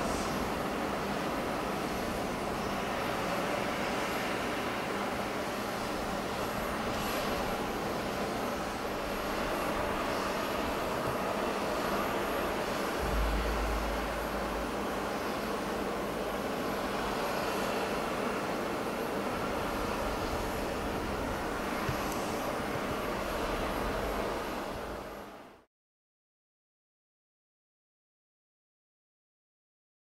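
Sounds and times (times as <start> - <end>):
distant turboprop engines droning: 0.0 - 25.6
low rumble: 13.0 - 15.5.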